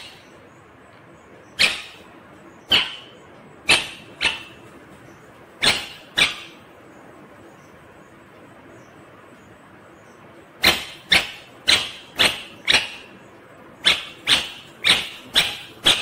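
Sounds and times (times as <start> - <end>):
parakeet sharp calls: 0.0 - 0.5, 1.4 - 6.8, 10.6 - 16.0.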